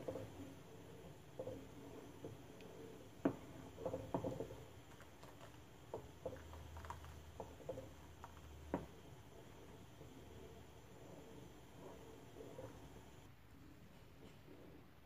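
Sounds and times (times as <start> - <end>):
wooden spoon scraping a saucepan: 0.0 - 13.3.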